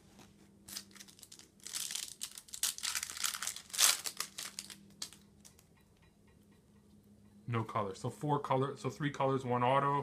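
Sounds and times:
plastic wrapper crinkling and tearing: 0.7s - 5.6s.

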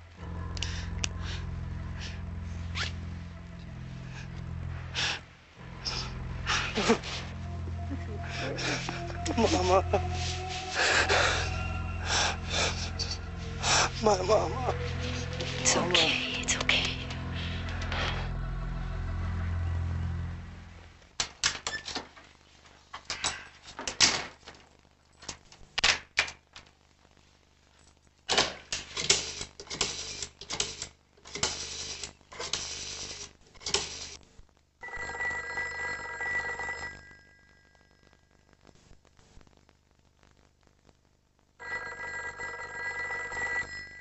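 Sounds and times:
low sustained music: 0.0s - 21.0s
telephone bell ringing: 34.8s - 38.0s, 41.6s - 44.0s.

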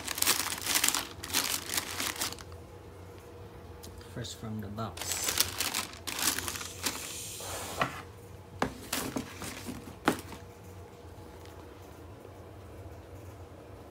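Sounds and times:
tissue paper rustling: 0.0s - 2.5s, 5.0s - 7.7s, 8.8s - 10.4s.

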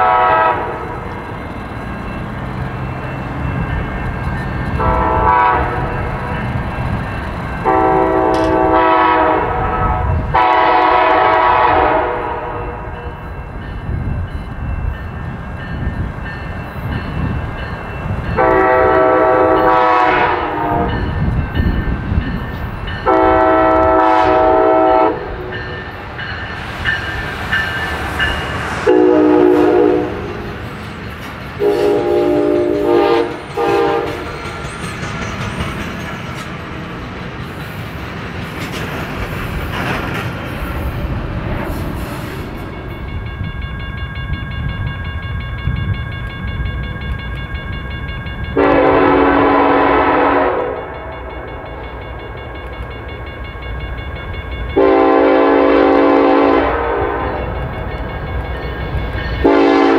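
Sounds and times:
locomotive air horn: 0.0s - 1.0s, 4.8s - 5.9s, 7.6s - 12.8s, 18.4s - 21.0s, 23.0s - 25.5s, 28.8s - 30.4s, 31.6s - 34.2s, 48.6s - 51.1s, 54.8s - 57.5s, 59.4s - 59.9s
train rumbling: 0.0s - 59.9s.

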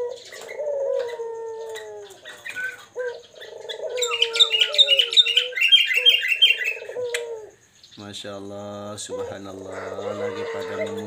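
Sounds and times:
doves cooing: 0.0s - 11.0s.

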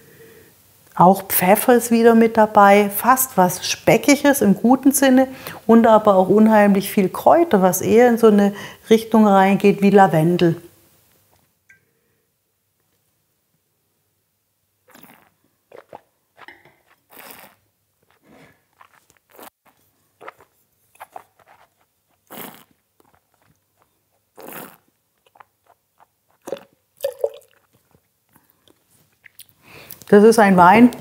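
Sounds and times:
spitting into metal spittoon: 14.9s - 26.7s
wine slurping and swishing: 14.9s - 28.0s.

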